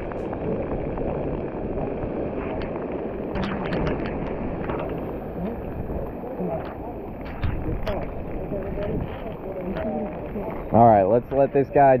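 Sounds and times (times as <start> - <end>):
rough surf: 0.0 - 12.0
wind buffeting microphone: 0.0 - 12.0.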